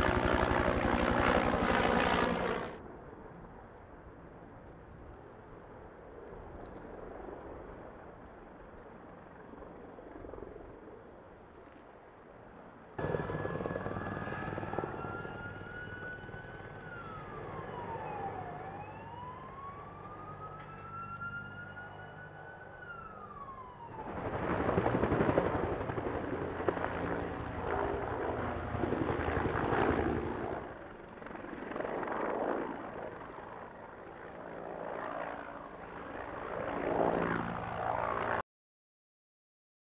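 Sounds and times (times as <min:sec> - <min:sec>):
helicopter turbine and rotor: 0:00.0 - 0:38.4
siren wailing: 0:13.0 - 0:24.5.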